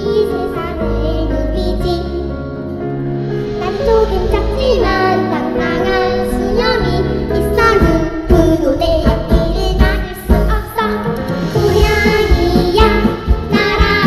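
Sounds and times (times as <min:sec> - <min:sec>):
backing music with steady beat: 0:01.2 - 0:14.0
girls singing into microphones: 0:03.8 - 0:14.0.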